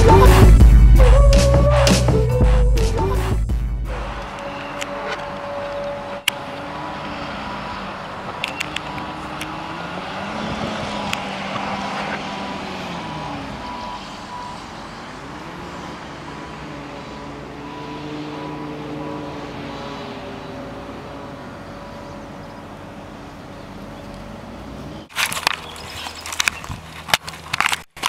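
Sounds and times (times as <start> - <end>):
heavy machinery engines labouring: 0.0 - 27.9
reversing alarm beeping: 3.9 - 6.4, 13.4 - 14.8, 17.5 - 19.1.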